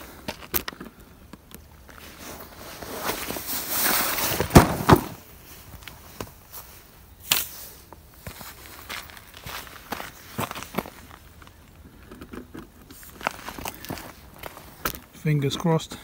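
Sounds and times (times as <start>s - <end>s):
footsteps on grass: 2.0s - 11.6s, 13.0s - 15.1s
fishing tackle rustling and knocking: 7.3s - 15.8s.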